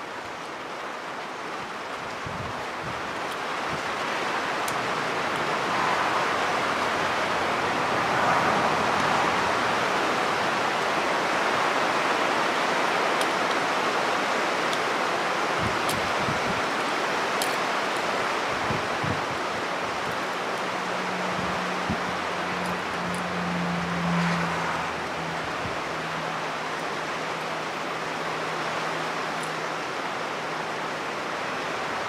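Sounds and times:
steady rushing hiss: 0.0 - 32.0
pliers clicking on wires: 17.4 - 17.6.

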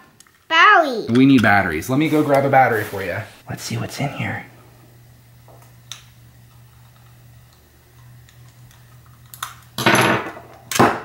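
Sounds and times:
steady low hum: 3.1 - 9.8.

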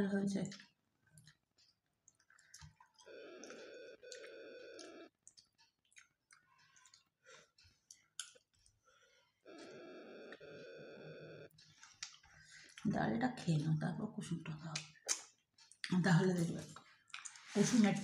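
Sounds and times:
faint steady tone: 2.9 - 5.1, 8.9 - 11.7.

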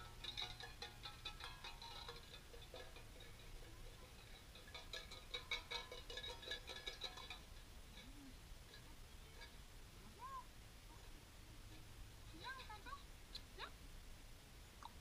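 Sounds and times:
tin cans clinking and rattling: 0.0 - 7.5.

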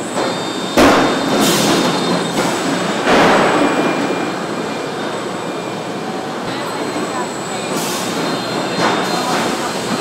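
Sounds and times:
loud metal clanks: 3.0 - 4.5.

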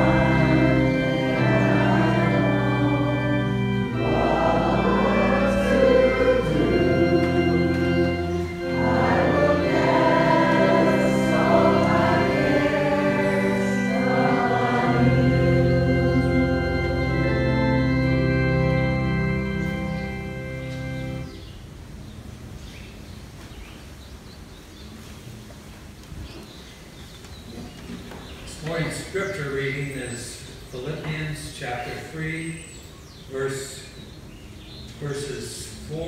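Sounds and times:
choir singing a hymn: 0.0 - 21.3
organ holding long chords: 0.0 - 21.9.

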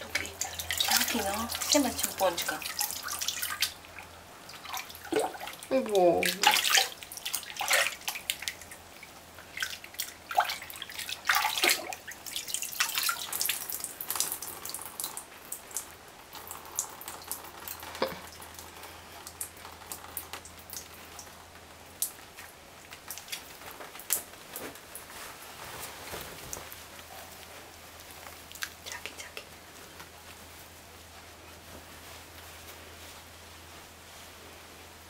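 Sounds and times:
water splashing in a bucket: 0.0 - 24.3
water dripping: 0.0 - 24.4, 28.0 - 29.5.

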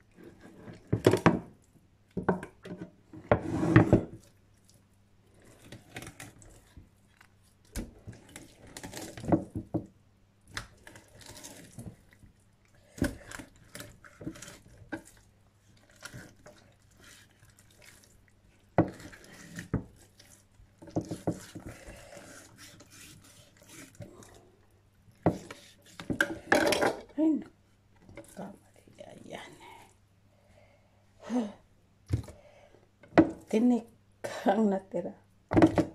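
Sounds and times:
knife slicing and scraping fish: 10.5 - 12.1, 12.9 - 18.1, 18.8 - 24.4, 25.3 - 26.5.

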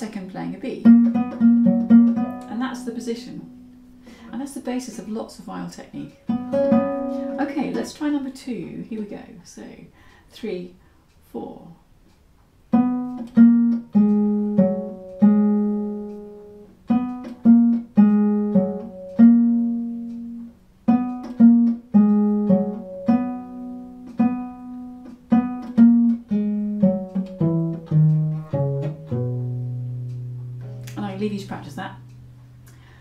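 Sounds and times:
bowed bass viol notes: 12.8 - 32.7.

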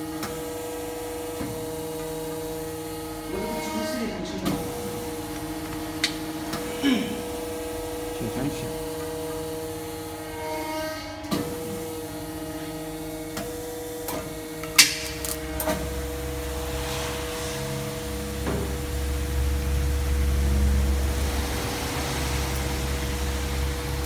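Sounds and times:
machine electric hum: 0.0 - 24.0
low rumble: 15.9 - 24.0.

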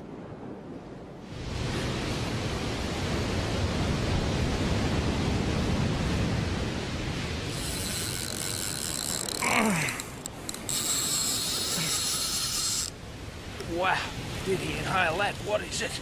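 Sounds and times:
wind: 0.0 - 16.0
surf against rocks: 1.3 - 16.0
fishing reel drag buzzing: 7.5 - 13.0.

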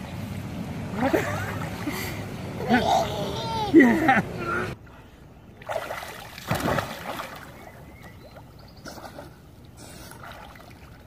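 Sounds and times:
pool water splashing: 0.0 - 4.8, 5.4 - 11.0
water sloshing and lapping: 4.8 - 11.0.

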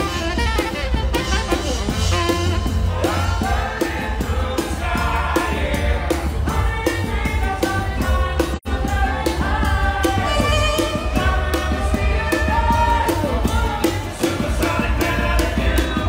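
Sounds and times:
saxophone melody: 0.0 - 3.8, 9.7 - 13.8
dance music drum beat: 0.0 - 16.0.

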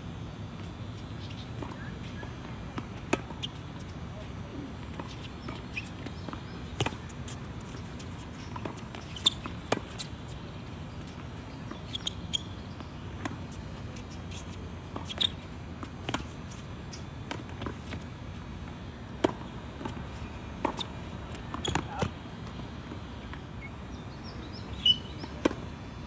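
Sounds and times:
racquets striking tennis ball: 0.4 - 25.9
ball bouncing on court: 20.6 - 22.1.

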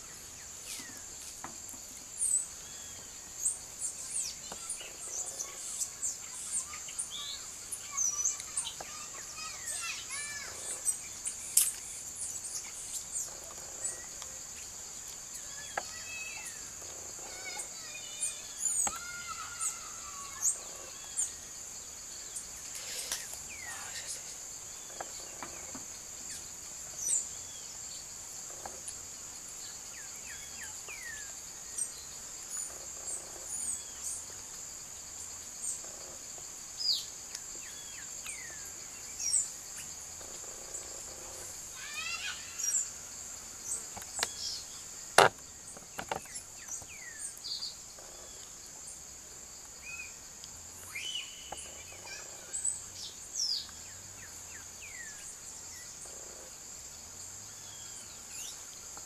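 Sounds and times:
high-pitched insect drone: 2.2 - 56.8
bird chirps and whistles: 50.9 - 51.7.

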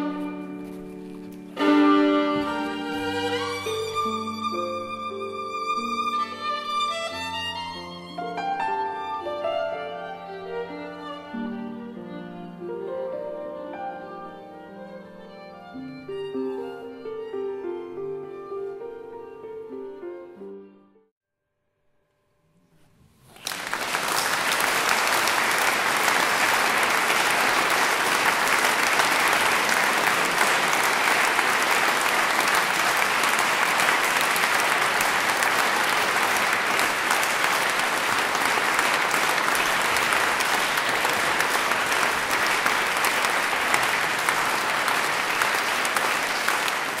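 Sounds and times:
audience applauding: 2.2 - 4.1, 23.3 - 47.0.

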